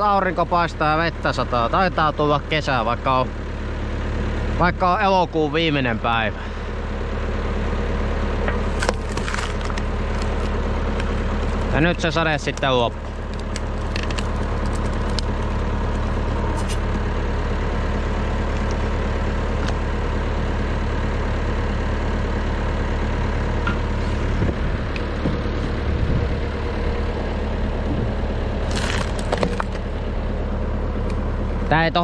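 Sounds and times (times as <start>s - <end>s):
tractor engine running: 0.0s - 32.0s
firewood cracking and splintering: 8.5s - 17.1s, 18.2s - 19.8s, 27.7s - 30.2s.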